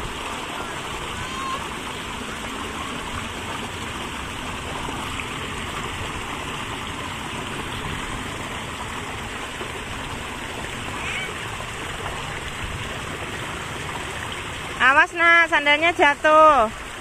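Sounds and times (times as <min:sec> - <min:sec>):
water rushing along a channel: 0:00.0 - 0:17.0.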